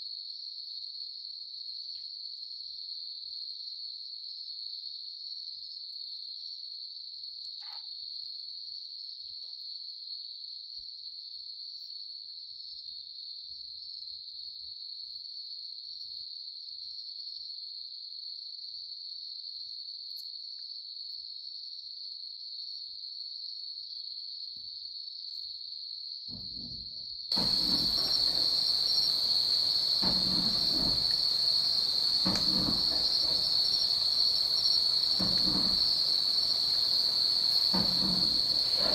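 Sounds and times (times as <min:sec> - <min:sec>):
night insects trilling: 0:27.3 - 0:38.9
rustling and scuffling: 0:27.4 - 0:38.9.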